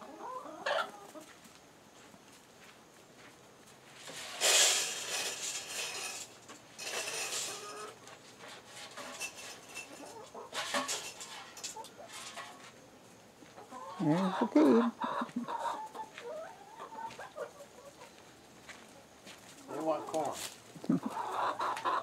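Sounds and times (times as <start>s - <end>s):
chickens clucking: 0.0s - 1.6s, 4.0s - 22.0s
loud rustling and rattling: 4.0s - 7.7s.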